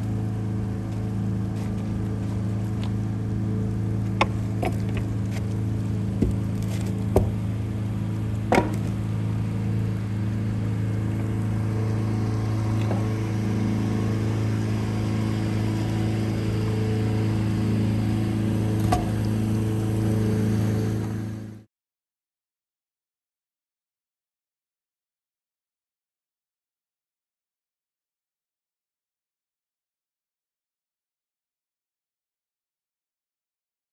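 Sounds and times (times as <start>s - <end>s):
boat engine droning: 0.0s - 21.7s
sharp knocks and clicks: 8.5s - 8.9s.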